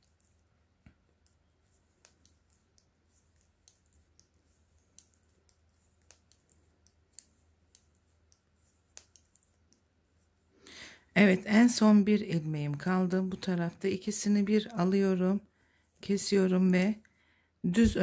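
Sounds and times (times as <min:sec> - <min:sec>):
knitting needles clicking: 0:00.0 - 0:09.9.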